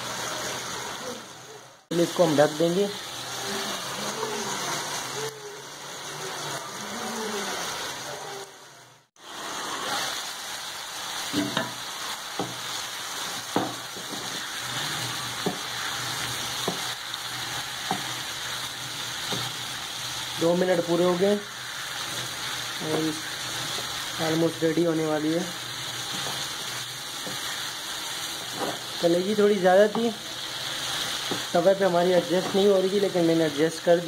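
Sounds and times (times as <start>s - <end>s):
chicken livers sizzling in oil: 0.0s - 34.0s
wooden spatula knocking pan: 13.5s - 14.4s.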